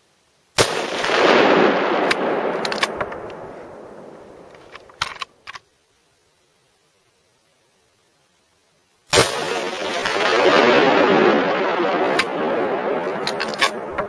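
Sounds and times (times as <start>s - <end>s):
rifle shot with echo: 0.6s - 5.1s, 9.1s - 14.0s
sharp clicks: 2.0s - 3.4s, 13.2s - 14.0s.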